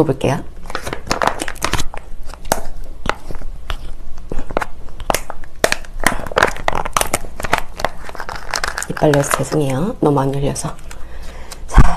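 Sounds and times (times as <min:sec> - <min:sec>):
plastic pouch crinkling: 0:00.6 - 0:09.9.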